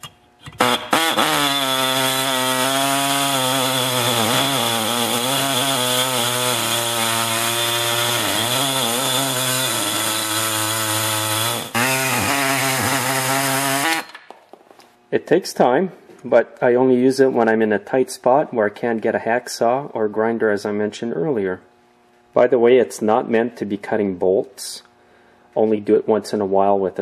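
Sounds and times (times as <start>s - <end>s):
air saw cutting steel: 0.0s - 14.2s.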